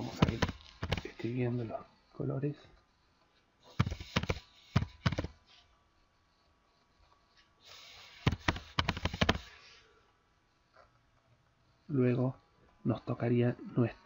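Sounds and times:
keyboard typing: 0.0s - 1.1s, 3.8s - 5.4s, 7.8s - 9.5s.

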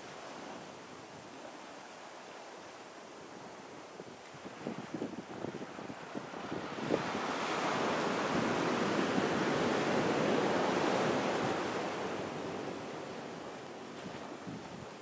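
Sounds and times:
ocean surf breaking: 4.7s - 14.8s.

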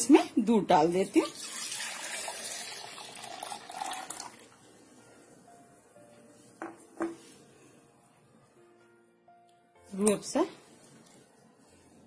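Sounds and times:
milk pouring into metal jar: 1.3s - 4.5s.

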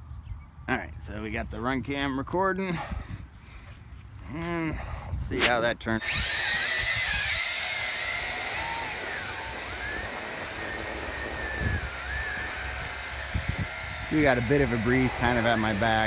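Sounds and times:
drone propellers whining: 6.0s - 16.0s.

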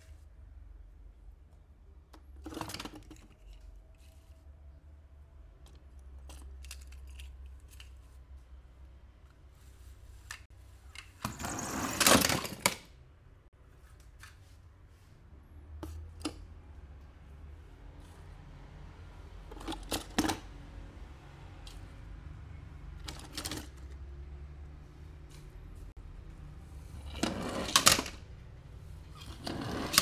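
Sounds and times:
plastic toys clicking and tapping: 5.6s - 8.2s.

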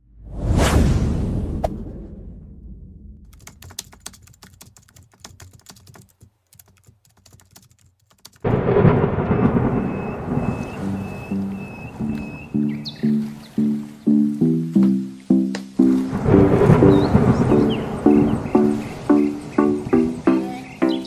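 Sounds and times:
whoosh: 0.0s - 3.3s
low rumble: 0.0s - 3.4s, 16.1s - 19.0s
loud background music: 14.4s - 21.0s.

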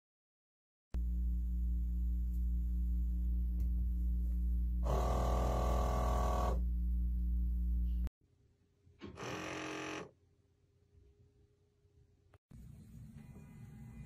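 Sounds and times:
low electrical hum: 1.0s - 10.0s
loud buzzing: 4.8s - 6.7s.

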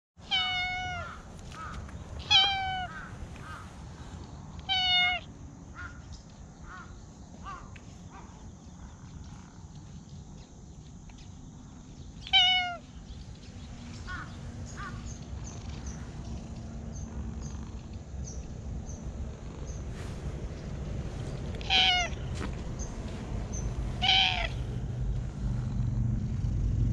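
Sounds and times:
cat meowing: 0.2s - 3.6s, 4.6s - 5.3s, 12.2s - 12.9s, 21.5s - 22.5s, 23.8s - 24.8s
low steady rumble: 12.8s - 26.9s.

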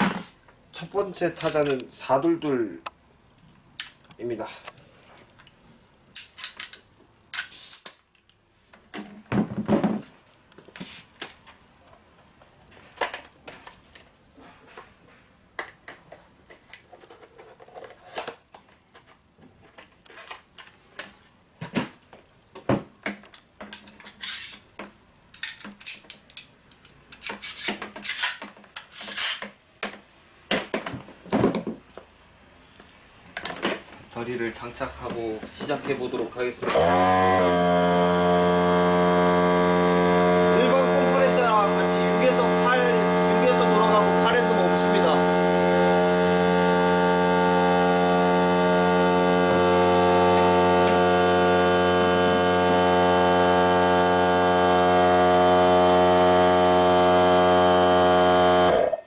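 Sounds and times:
pneumatic tacker clicks and rattles: 25.4s - 29.6s, 36.6s - 59.0s.

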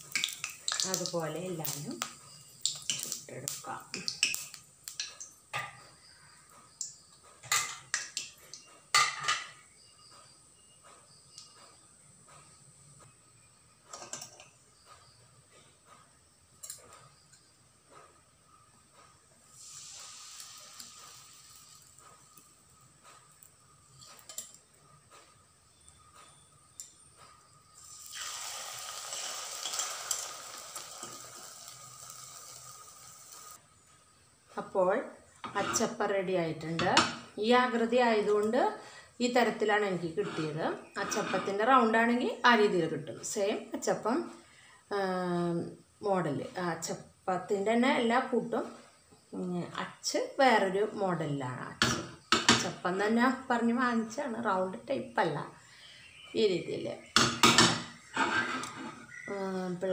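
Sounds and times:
oil sizzling: 0.0s - 5.8s, 19.4s - 24.5s, 27.8s - 33.6s.

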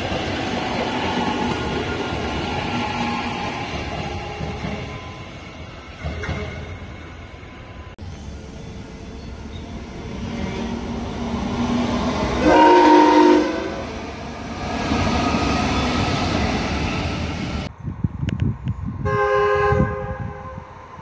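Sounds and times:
train rolling past: 0.0s - 21.0s
train horn: 12.4s - 13.9s, 19.0s - 20.7s
gusty low rumble: 17.6s - 20.8s.

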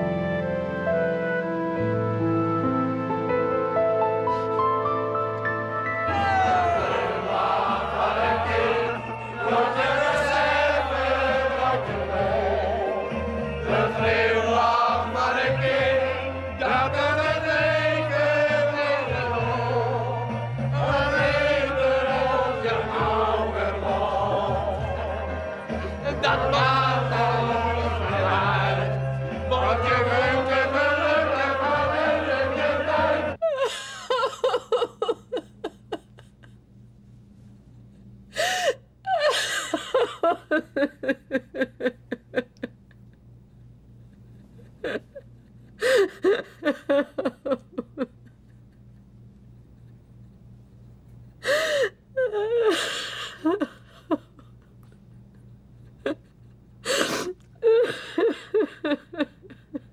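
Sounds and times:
woman sobbing: 6.1s - 7.1s, 25.7s - 26.9s, 33.4s - 36.6s, 38.0s - 49.0s, 51.4s - 59.9s
crowd singing a chant: 6.7s - 33.4s.

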